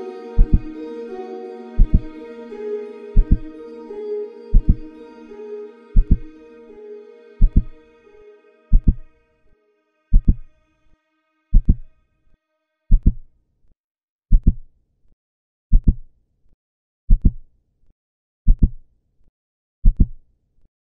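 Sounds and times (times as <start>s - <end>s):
human heartbeat: 15.7s - 16.0s.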